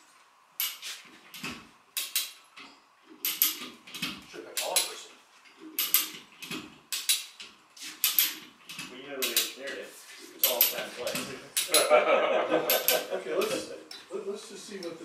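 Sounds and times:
metallic clicks and clanks: 0.6s - 9.6s, 10.4s - 11.9s, 12.7s - 14.1s.

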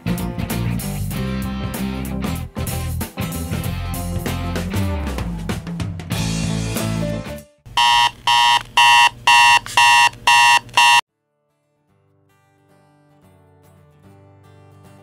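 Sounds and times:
rock music with guitar: 0.0s - 7.2s
digital alarm clock beeping: 7.8s - 11.0s.

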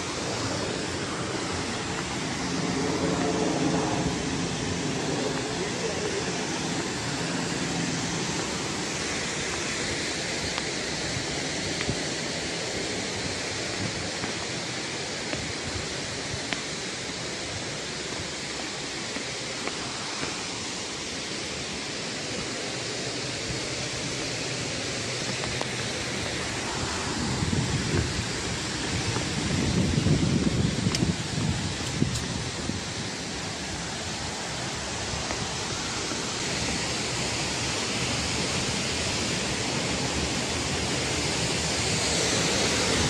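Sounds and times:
waterfall rushing: 0.0s - 43.0s
wind buffeting microphone: 26.2s - 35.8s.

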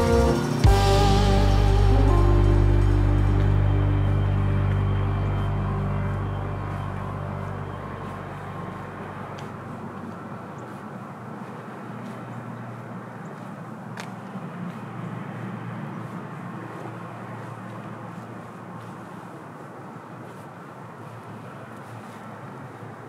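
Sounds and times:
background music: 0.0s - 9.7s
city traffic noise: 0.0s - 23.0s.

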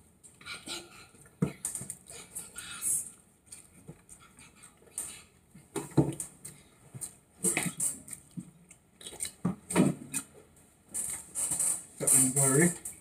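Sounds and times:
man chewing and smacking lips: 0.1s - 11.4s.

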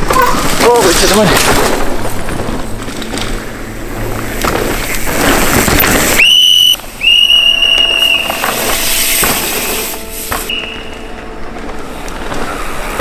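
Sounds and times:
loud rushing noise: 0.0s - 13.0s
whistle blasts: 6.2s - 11.0s.

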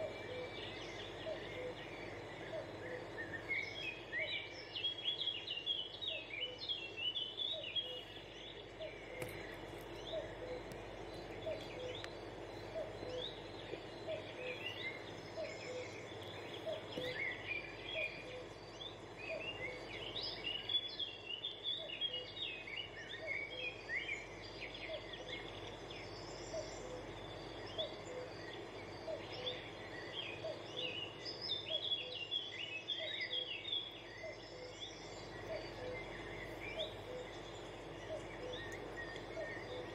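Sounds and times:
birds chirping and twittering: 0.0s - 39.9s
soft steady hiss: 0.0s - 39.9s.

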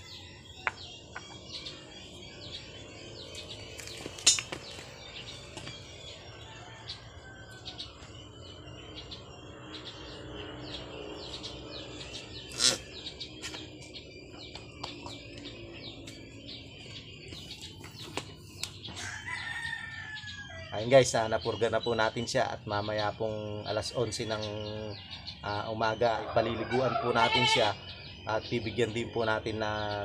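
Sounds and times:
small birds chirping: 0.0s - 30.0s
rooster crowing: 6.1s - 8.1s, 19.0s - 20.8s, 26.2s - 27.6s.

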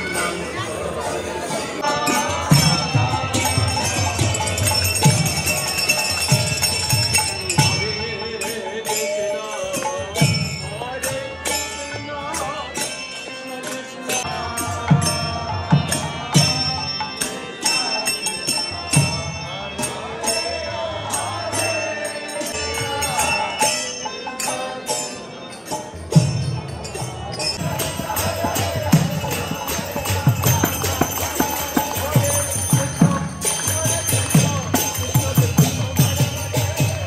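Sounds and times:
hand drum: 27.6s - 37.0s
crowd clapping along: 30.5s - 35.4s.

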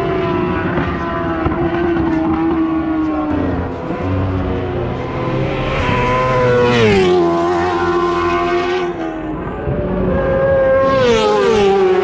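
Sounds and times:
racing motorcycles passing: 0.0s - 12.0s.

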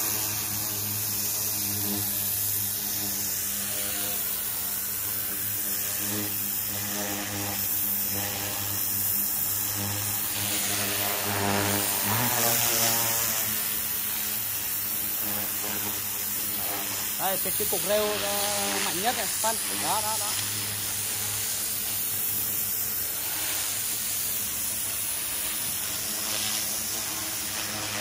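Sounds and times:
pressure washer motor and pump hum: 0.0s - 28.0s
water jet spray hissing: 0.0s - 28.0s.

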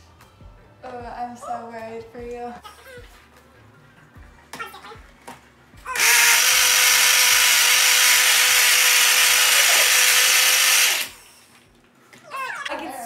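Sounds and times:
blender motor running: 5.9s - 11.3s.

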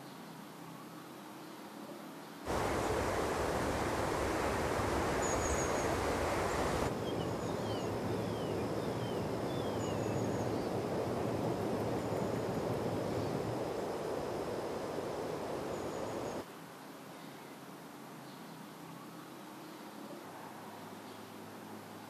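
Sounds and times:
wind through foliage: 0.0s - 22.0s
small bird chirping: 2.5s - 16.4s.

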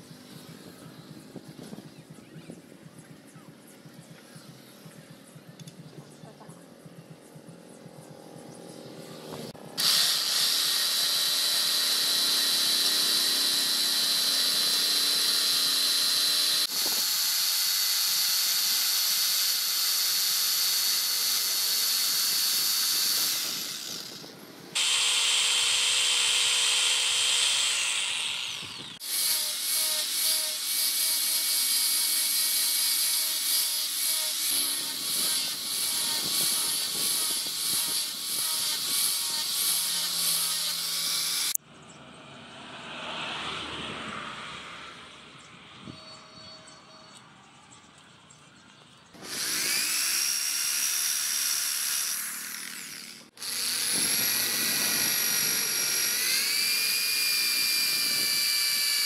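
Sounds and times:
angle grinder sanding wood: 9.3s - 41.6s
electric jigsaw cutting wood: 9.3s - 41.6s, 49.2s - 59.0s.

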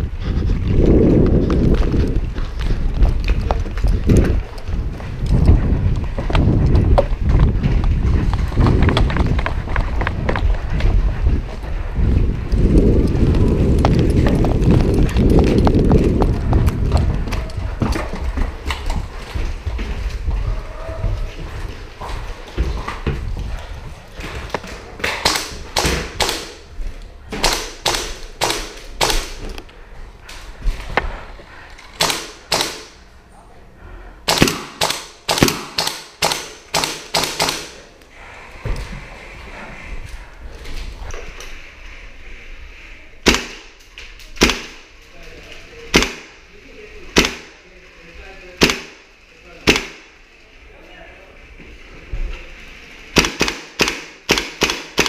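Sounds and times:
airsoft rifle shots: 25.1s - 26.6s, 27.4s - 29.4s, 32.0s - 33.0s, 34.3s - 37.8s, 43.2s - 43.8s, 44.4s - 44.9s, 45.9s - 46.4s, 47.1s - 47.6s, 48.6s - 50.2s, 53.1s - 55.0s.

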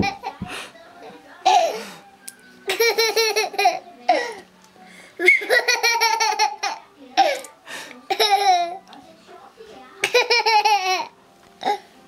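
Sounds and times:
toddler laughing: 2.7s - 3.8s, 5.2s - 6.8s, 8.1s - 8.8s, 10.0s - 11.8s.

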